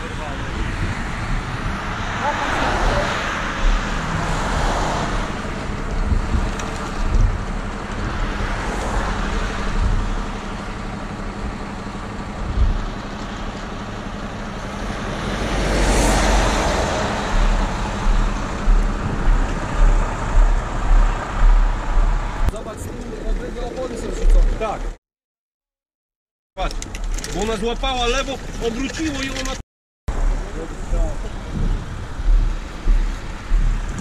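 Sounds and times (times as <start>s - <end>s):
expressway traffic rushing: 0.0s - 25.0s, 30.1s - 34.0s
vehicle passing: 0.2s - 10.7s, 14.7s - 24.2s
low thumps: 3.4s - 10.5s, 12.4s - 13.0s, 16.1s - 22.6s, 31.0s - 34.0s.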